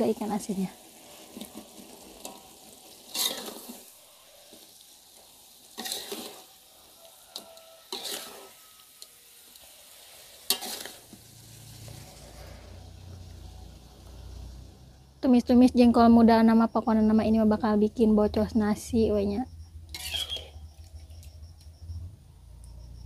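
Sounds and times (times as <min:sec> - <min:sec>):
sauce sizzling: 0:00.0 - 0:21.3
spoon scraping frying pan: 0:01.0 - 0:12.5, 0:19.9 - 0:21.2.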